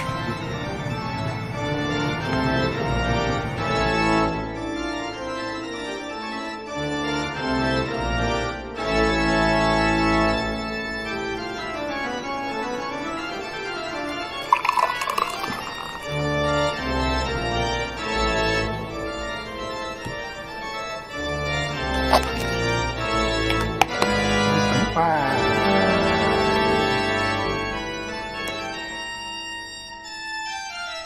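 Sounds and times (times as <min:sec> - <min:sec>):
organ playing held chords: 0:00.0 - 0:31.0.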